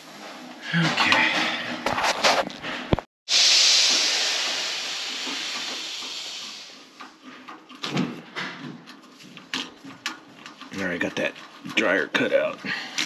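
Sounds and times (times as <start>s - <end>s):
pressurised gas hissing: 3.3s - 7.0s.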